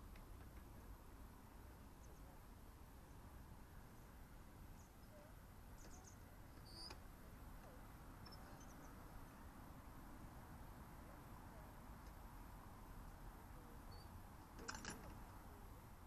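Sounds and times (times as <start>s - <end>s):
faint outdoor rumble: 0.0s - 16.0s
small birds chirping: 1.6s - 9.6s, 13.6s - 15.6s.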